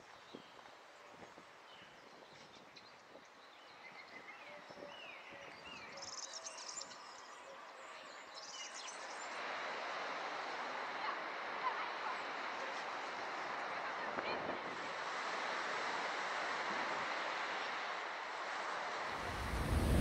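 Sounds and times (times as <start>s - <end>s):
background hiss: 18.2s - 20.0s.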